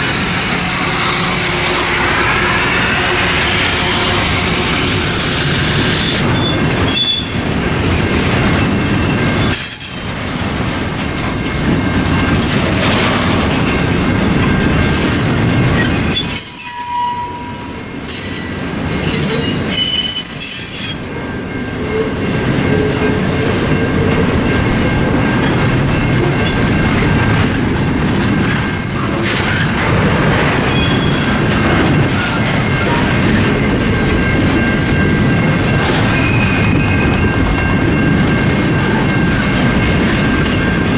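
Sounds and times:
crossing bells ringing: 0.0s - 40.9s
train wheels clattering over rail joints: 4.2s - 16.5s, 21.9s - 40.9s
high-pitched wheel squeal: 15.8s - 21.0s, 28.6s - 32.4s.

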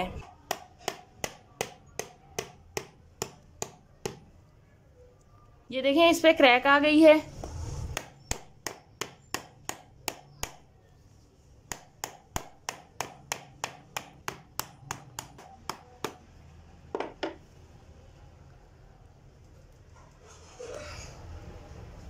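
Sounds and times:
hammer tapping hard fruit shell: 0.2s - 4.3s, 8.0s - 10.7s, 11.6s - 16.2s.

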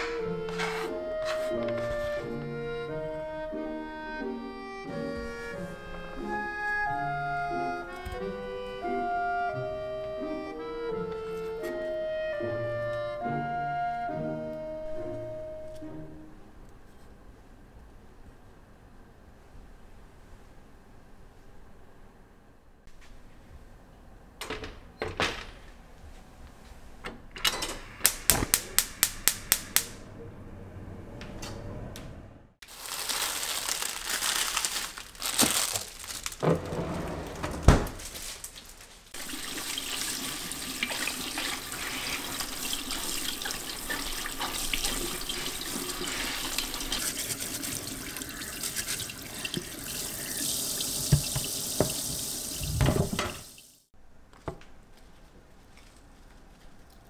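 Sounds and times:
quick clicks: 28.0s - 30.0s
kitchen tap running: 39.2s - 53.8s.

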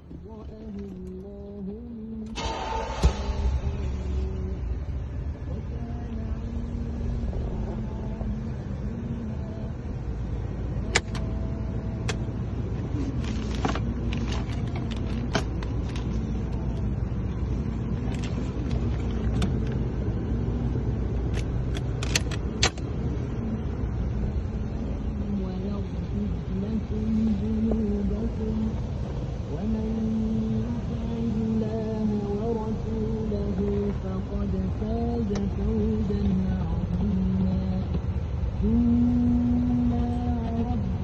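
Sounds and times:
car engine idling: 0.0s - 41.0s
glove box clicks and rattles: 10.9s - 11.3s, 13.2s - 16.2s, 18.0s - 19.8s, 21.3s - 22.9s.

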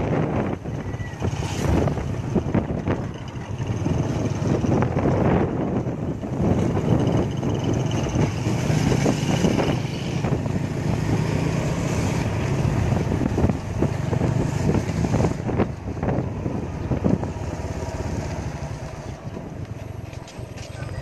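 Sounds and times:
wind noise on microphone: 0.0s - 21.0s
small motorcycle engine running: 1.1s - 14.1s.

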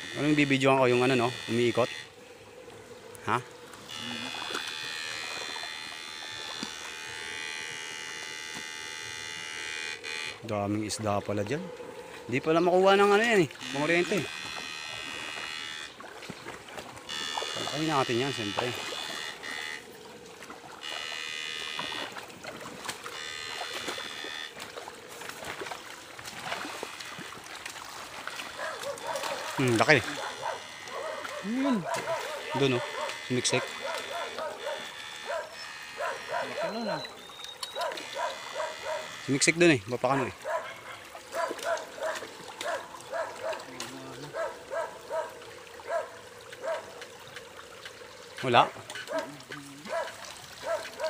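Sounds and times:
high-pitched electrical whine: 0.0s - 2.2s, 3.2s - 10.8s
inverter buzzing whine: 0.0s - 40.7s
splashes and knocks in water: 4.2s - 7.0s, 13.0s - 19.5s, 20.1s - 34.8s, 39.8s - 51.0s.

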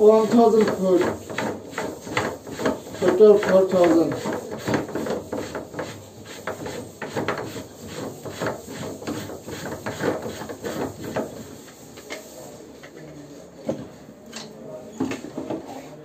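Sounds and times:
plastic scraping on plastic: 0.2s - 12.4s.

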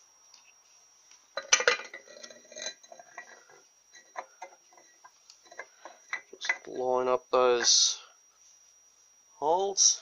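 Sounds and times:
metal clinks and knocks: 1.4s - 6.7s.

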